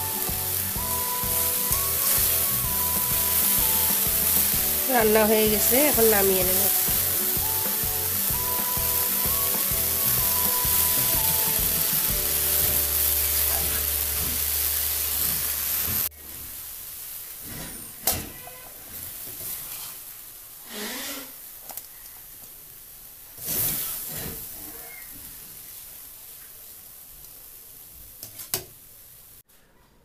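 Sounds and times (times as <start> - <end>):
background music: 0.0 - 15.3
vegetables sizzling in a pan: 0.0 - 18.0, 18.8 - 29.4.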